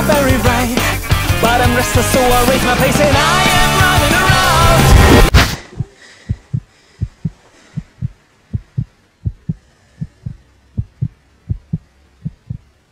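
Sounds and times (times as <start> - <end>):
heartbeat thumps: 4.9 - 12.8.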